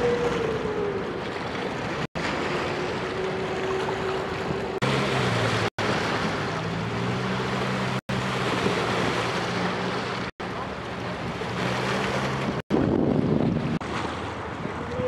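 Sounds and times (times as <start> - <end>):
ferry engine whine: 0.0 - 15.0
rushing water: 0.0 - 15.0
waves washing onto rocks: 1.2 - 15.0.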